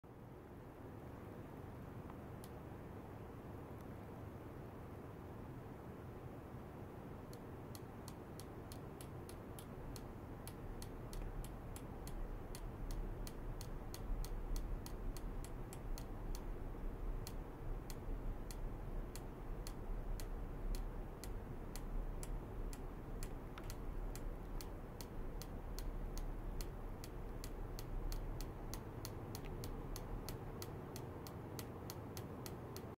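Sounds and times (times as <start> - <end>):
low hum: 0.4 - 32.9
sharp ultrasonic probe ticks: 2.4 - 2.6, 7.2 - 32.9.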